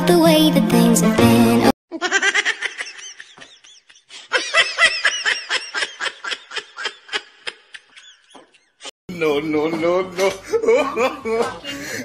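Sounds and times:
high-pitched laughter: 0:01.9 - 0:08.9.

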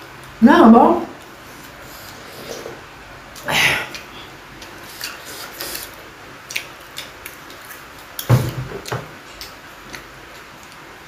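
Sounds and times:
wet chewing mouth sounds: 0:03.4 - 0:10.8.

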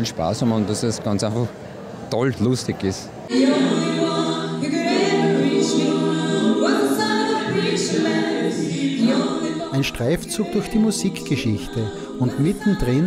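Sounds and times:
vocal ensemble singing chords: 0:03.2 - 0:13.0.

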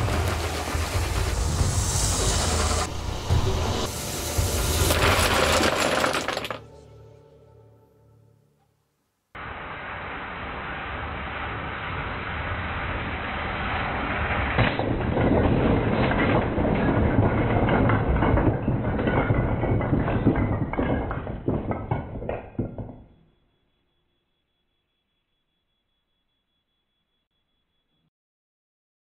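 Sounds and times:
toy train rumble: 0:00.0 - 0:06.6
wooden blocks clattering: 0:04.8 - 0:06.8, 0:14.8 - 0:23.1.

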